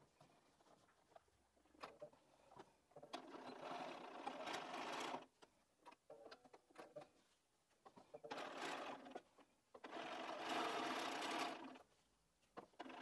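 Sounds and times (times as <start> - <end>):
sewing machine stitching: 3.0 - 5.3, 8.2 - 11.8, 12.6 - 13.0.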